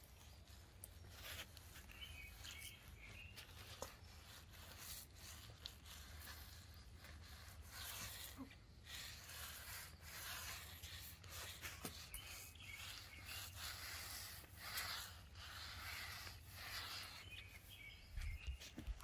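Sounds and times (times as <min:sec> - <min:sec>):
faint bird chirps: 0:00.0 - 0:04.4, 0:11.8 - 0:14.0, 0:16.7 - 0:19.0
roller swishing over concrete: 0:00.0 - 0:19.0.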